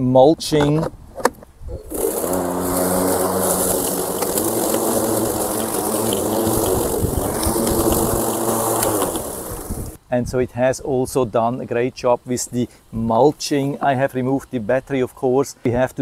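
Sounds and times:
mower blade cutting grass: 1.7 - 10.0
lawn mower starting and running: 1.8 - 10.0.

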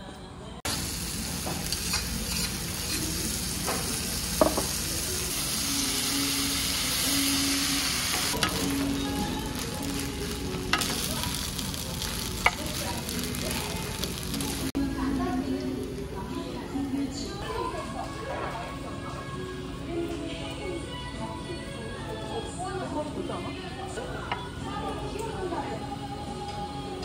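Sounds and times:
rice sizzling on a griddle: 0.7 - 16.0
spatulas scraping a griddle: 1.6 - 3.9.

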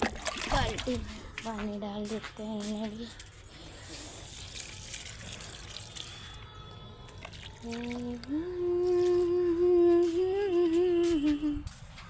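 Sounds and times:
water trickling from a bucket: 0.0 - 10.5
woman humming a tune: 7.6 - 11.8.

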